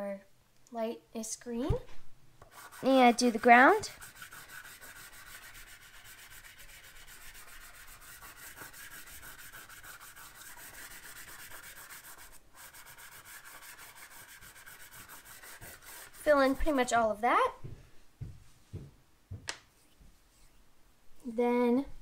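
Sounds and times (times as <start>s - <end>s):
chalk pastel scraping on paper: 2.4s - 16.9s.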